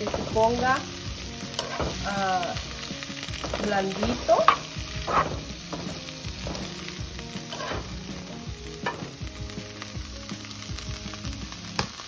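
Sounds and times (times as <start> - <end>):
spoon scraping and knocking on pan: 0.0 - 0.8, 1.5 - 2.1, 3.2 - 9.3
vegetables sizzling in a frying pan: 0.0 - 12.0.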